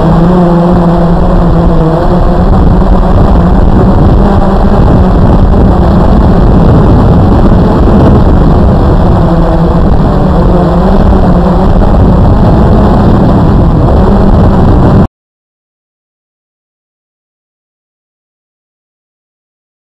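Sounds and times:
drone motors and propellers buzzing: 0.0s - 15.1s.

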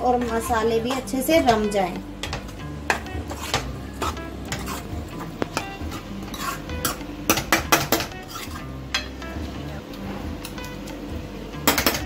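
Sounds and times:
ladle scraping metal pan: 2.2s - 7.0s, 7.8s - 9.1s.

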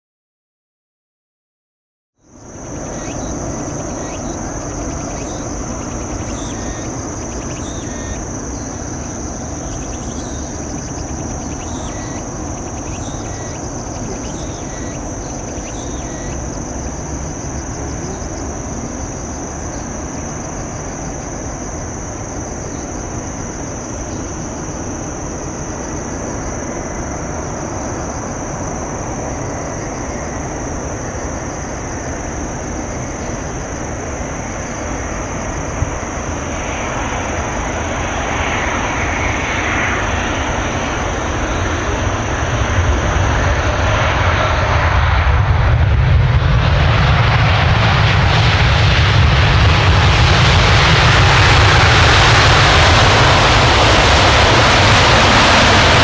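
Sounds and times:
high-pitched insect trill: 2.2s - 45.3s.

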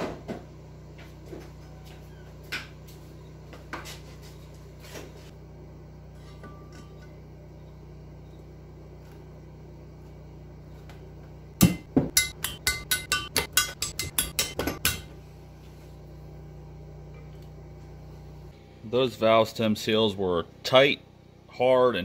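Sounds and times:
metal engine parts clinking: 6.1s - 7.3s.

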